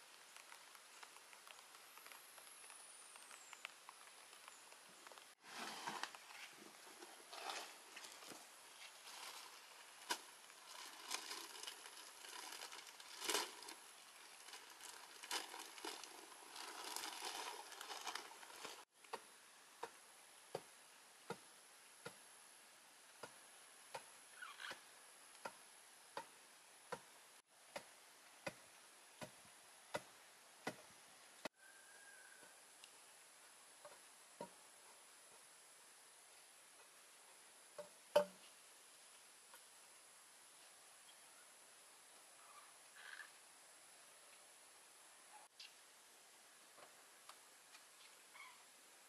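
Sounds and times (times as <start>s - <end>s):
cardboard rustling: 14.5s - 18.8s.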